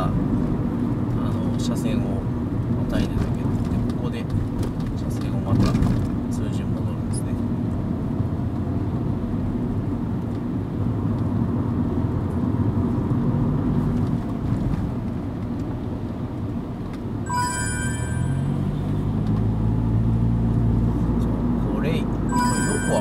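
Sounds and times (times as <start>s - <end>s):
car road and engine noise: 0.0s - 23.0s
high electronic chime: 17.3s - 19.0s, 22.3s - 23.0s.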